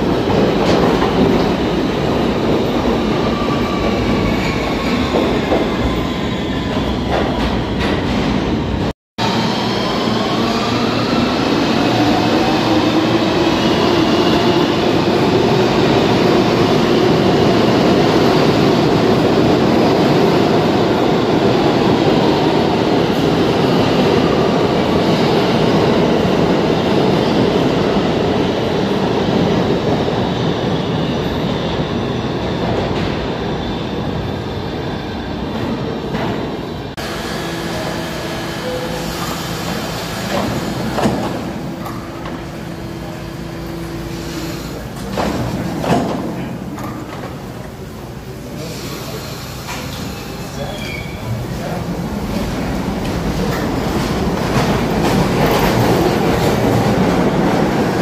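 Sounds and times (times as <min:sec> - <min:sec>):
rumble of train wheels on rail: 0:00.0 - 0:06.0, 0:10.3 - 0:58.0
gliding train whine: 0:29.7 - 0:45.1.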